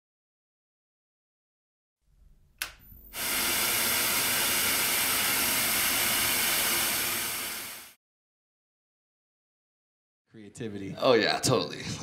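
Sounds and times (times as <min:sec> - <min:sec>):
sharp click: 0:02.6 - 0:02.8.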